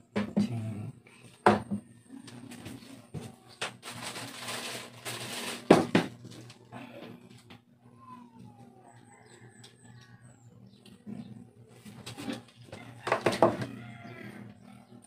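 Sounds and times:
steady low hum: 0:00.0 - 0:15.0
rustling handling noise: 0:02.2 - 0:06.7.

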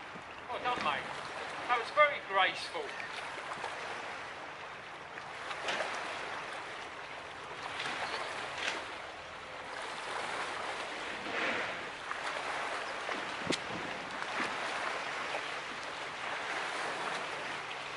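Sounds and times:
sea water washing against rocks: 0:09.6 - 0:17.9.

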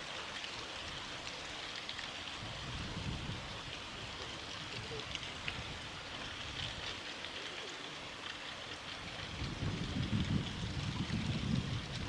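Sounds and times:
stream rushing: 0:00.0 - 0:12.0.

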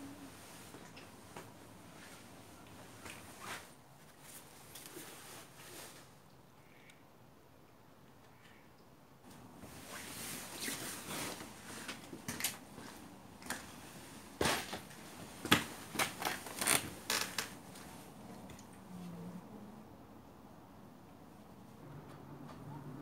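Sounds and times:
clothing rustling: 0:09.4 - 0:18.2.

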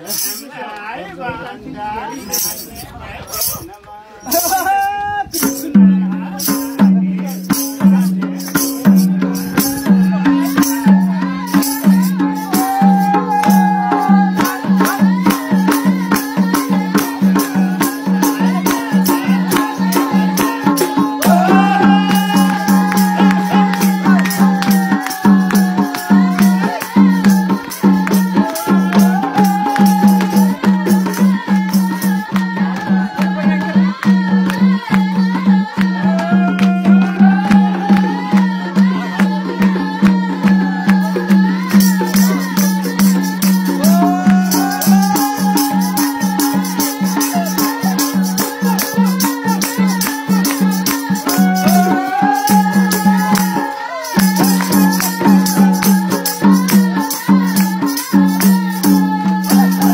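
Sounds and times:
percussion beat: 0:00.0 - 0:00.8, 0:02.0 - 0:59.9
folk dance music: 0:03.4 - 0:59.9
hand-clapping: 0:16.5 - 0:59.9.

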